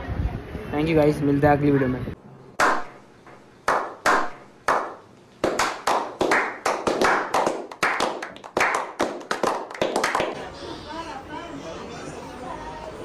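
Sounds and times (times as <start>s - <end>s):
men clapping hands: 2.6s - 2.9s, 3.7s - 10.4s.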